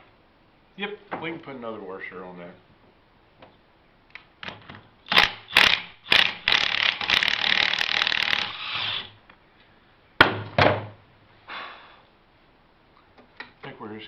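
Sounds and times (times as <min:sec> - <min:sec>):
impact wrench bursts: 0:05.0 - 0:09.2.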